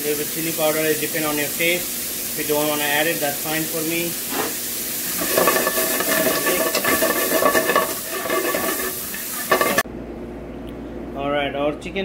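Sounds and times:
food sizzling in a frying pan: 0:00.0 - 0:09.9
metal spoon stirring: 0:05.1 - 0:09.8.

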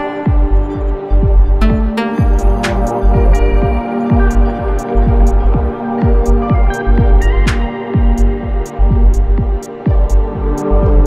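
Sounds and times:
electronic instrumental music: 0:00.0 - 0:11.0.

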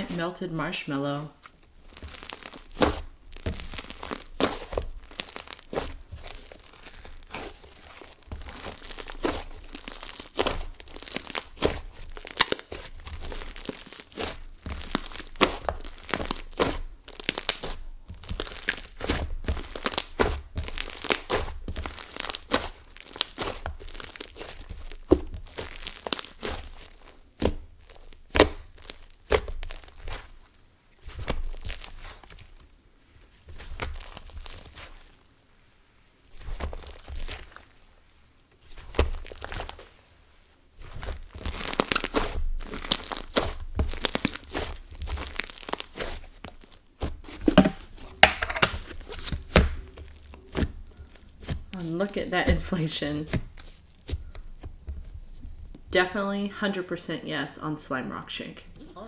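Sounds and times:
slime squeezed between hands: 0:01.8 - 0:30.4, 0:40.9 - 0:51.7.

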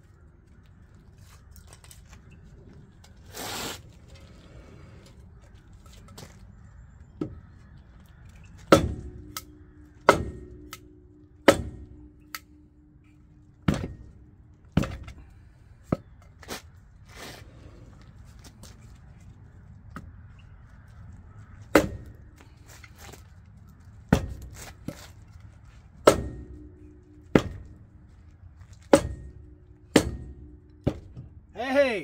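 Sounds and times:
wood striking a tyre: 0:07.2 - 0:16.6, 0:21.4 - 0:23.3, 0:24.0 - 0:31.6.

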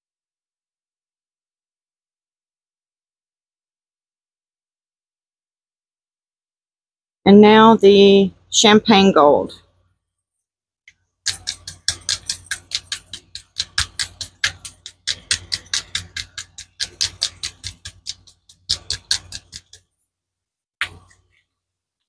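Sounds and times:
mixing ball rattling in bottle: 0:11.3 - 0:20.0, 0:20.8 - 0:21.4.

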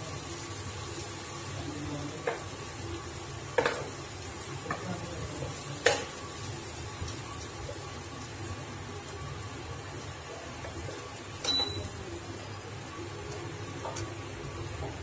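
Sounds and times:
low sizzle of frying: 0:00.0 - 0:15.0
spatula knocking pan: 0:05.8 - 0:06.2.

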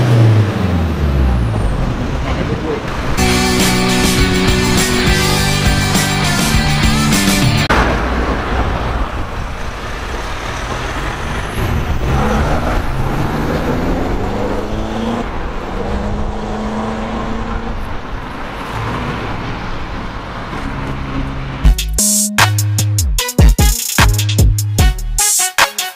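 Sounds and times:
car engine accelerating: 0:00.0 - 0:21.8
road traffic: 0:00.0 - 0:23.0.

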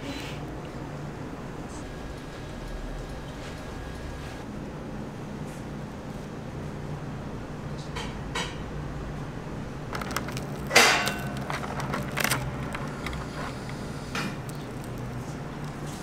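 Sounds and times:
steady low hum: 0:08.7 - 0:16.0
waffle cone tearing and crunching: 0:09.9 - 0:16.0.

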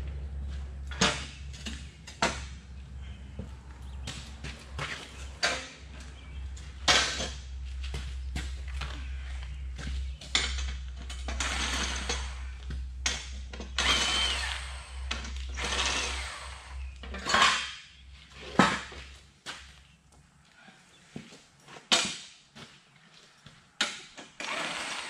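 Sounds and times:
power tool driving bolts: 0:10.4 - 0:17.7, 0:23.8 - 0:25.0.

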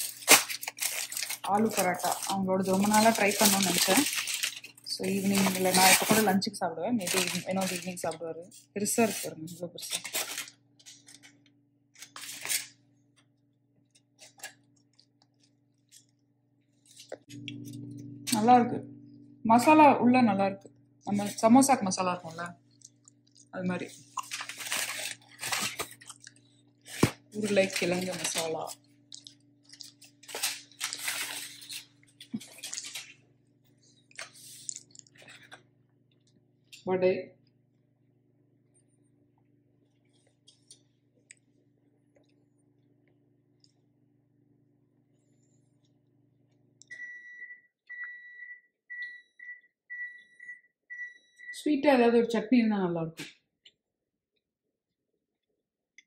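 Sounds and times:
bread tearing: 0:00.0 - 0:06.3, 0:09.9 - 0:11.4, 0:12.0 - 0:12.8, 0:24.0 - 0:33.2
aluminium foil crinkling: 0:00.0 - 0:12.8, 0:13.9 - 0:17.4, 0:21.1 - 0:33.2, 0:33.8 - 0:35.6
steady low hum: 0:00.0 - 0:47.0.

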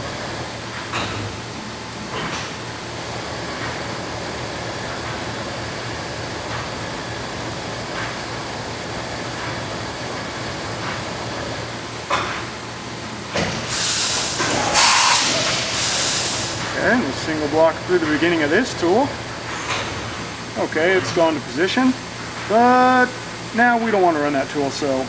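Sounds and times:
machine hum and hiss: 0:00.0 - 0:25.0
loud blast of air hiss: 0:13.4 - 0:17.1.

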